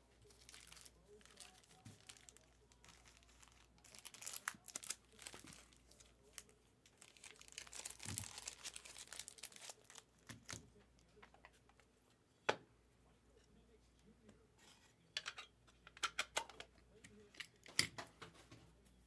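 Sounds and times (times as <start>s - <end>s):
plastic wrap crinkling and tearing: 0.2s - 10.6s.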